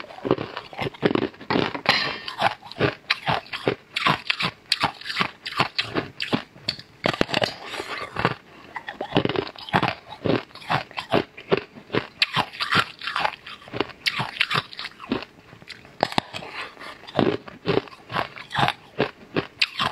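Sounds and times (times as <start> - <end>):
crunchy biting and chewing: 0.0 - 19.9.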